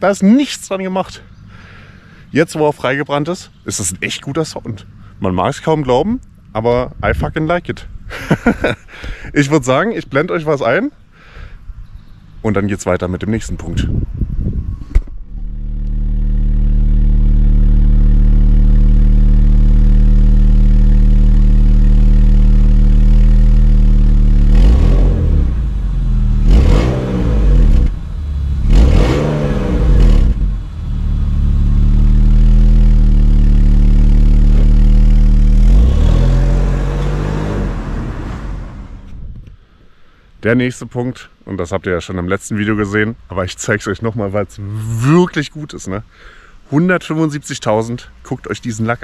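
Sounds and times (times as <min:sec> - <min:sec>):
car engine revving: 0:15.3 - 0:39.2.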